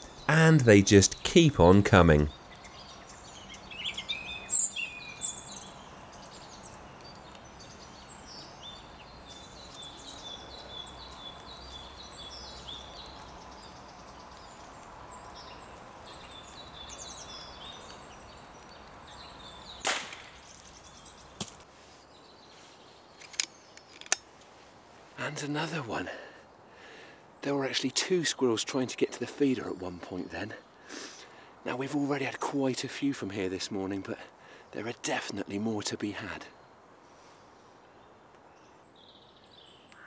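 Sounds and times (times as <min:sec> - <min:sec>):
birds calling: 0:00.0 - 0:40.0
air rifle firing crack: 0:19.8 - 0:20.4.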